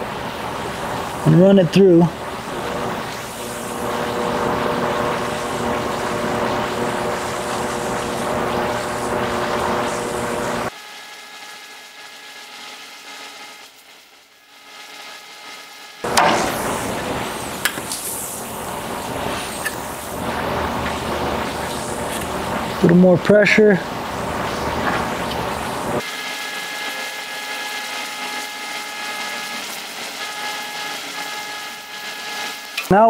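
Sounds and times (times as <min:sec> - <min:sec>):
motor-driven bead roller running: 0:02.1 - 0:10.7, 0:16.0 - 0:32.9.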